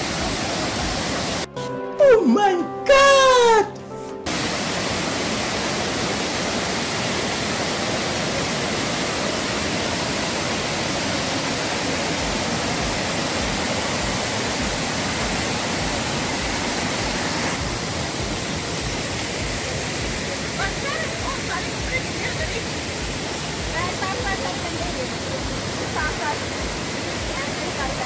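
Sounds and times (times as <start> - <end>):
stream cascading over boulders: 0.0 - 1.5, 4.3 - 28.0.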